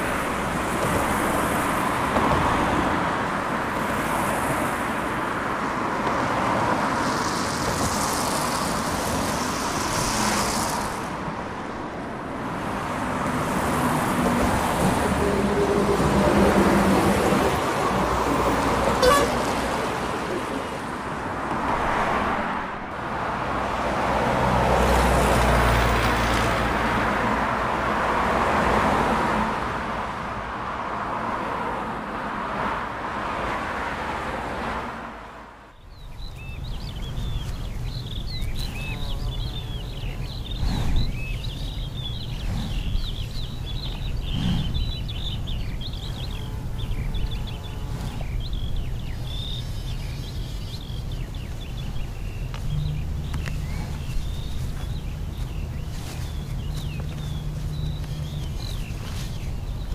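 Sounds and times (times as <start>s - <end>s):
vehicles passing with tyre noise: 0.0s - 59.9s
vehicle horn tooting: 18.9s - 19.7s.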